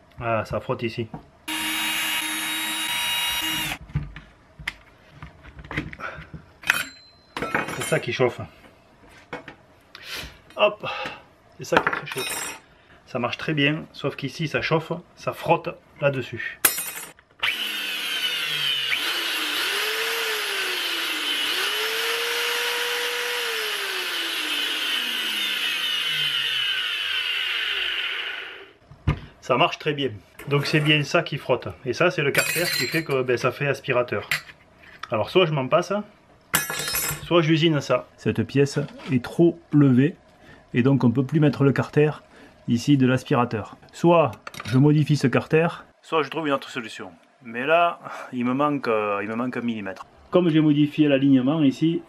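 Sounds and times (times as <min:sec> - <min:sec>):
power tool motor whining: 0:01.5 - 0:03.8, 0:17.4 - 0:28.8.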